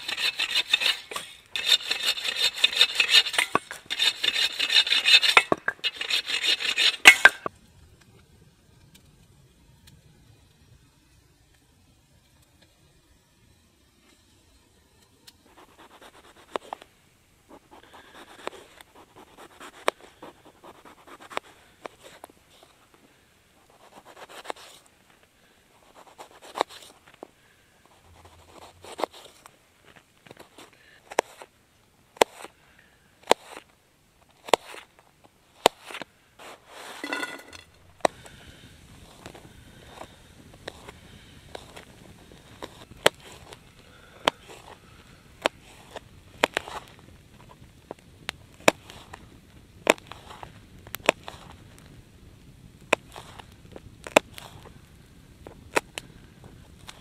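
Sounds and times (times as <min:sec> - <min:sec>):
knife slicing potatoes: 0:00.0 - 0:07.4.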